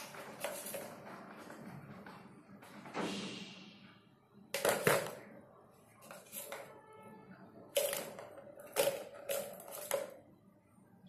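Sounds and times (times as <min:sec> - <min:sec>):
plastic balls rattling in toy track: 0:00.0 - 0:01.6, 0:04.6 - 0:05.2, 0:06.0 - 0:06.7, 0:07.7 - 0:10.2.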